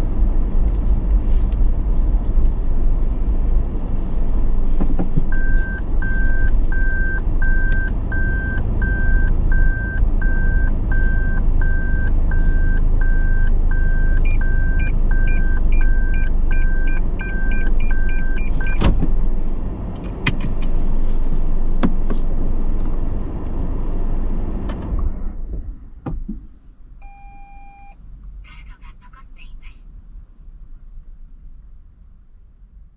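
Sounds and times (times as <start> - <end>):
car engine running: 0.0 - 26.4
reverse warning beeps: 5.3 - 18.8, 27.0 - 28.0
parking sensor beeping: 5.3 - 18.9, 27.0 - 28.0.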